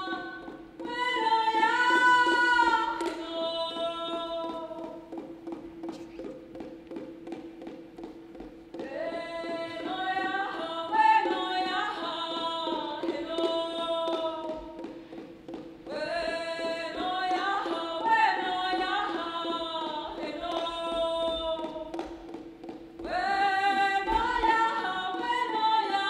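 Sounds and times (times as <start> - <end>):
woman singing: 0.0 - 5.2, 8.8 - 15.0, 15.8 - 22.4, 23.0 - 26.0
soft percussion taps: 0.1 - 26.0.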